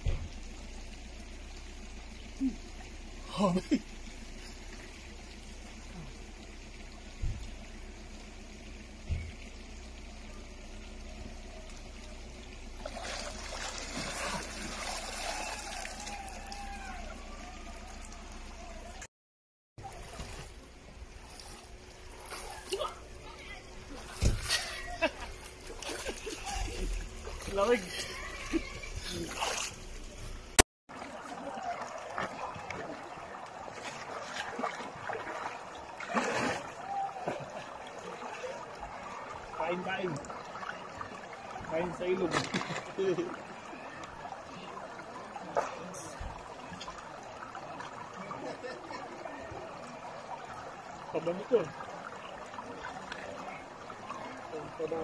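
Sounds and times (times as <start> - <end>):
stream trickling over stones: 0.0 - 19.1, 19.8 - 55.0
person splashing water: 12.8 - 16.6, 23.9 - 29.8, 30.9 - 39.4
short thump: 24.2 - 24.6.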